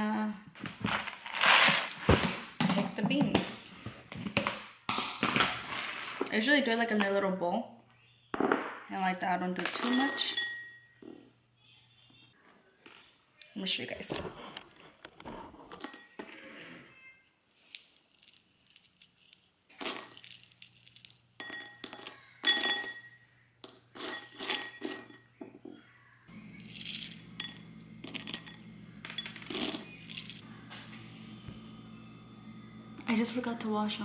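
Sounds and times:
dry beans rattling into ceramic bowl: 18.0s - 23.0s, 26.5s - 30.4s.

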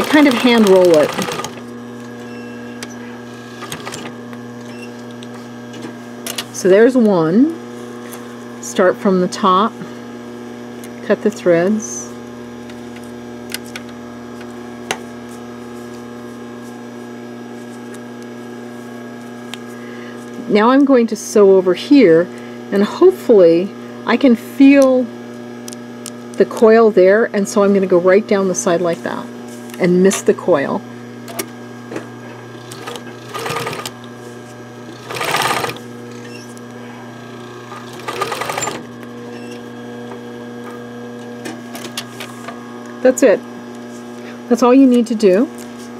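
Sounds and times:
sewing machine stitching: 0.0s - 1.7s, 3.4s - 4.2s, 32.5s - 34.0s, 34.9s - 36.2s, 37.2s - 38.9s
electrical hum: 0.0s - 45.9s.

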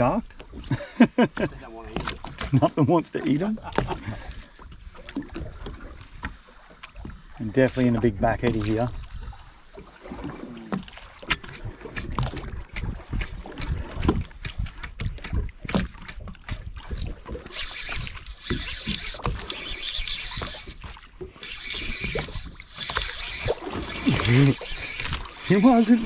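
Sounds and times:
knocks and clicks on boat: 0.0s - 26.0s
water against hull: 0.0s - 26.0s
high whirring: 17.5s - 20.8s, 21.4s - 26.0s.

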